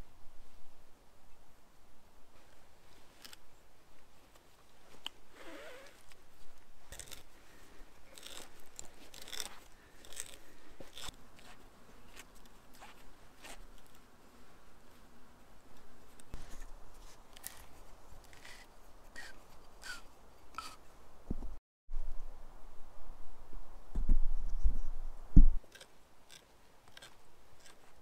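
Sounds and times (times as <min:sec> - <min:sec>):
hand auger boring into wood: 0:06.9 - 0:07.3, 0:08.0 - 0:12.3.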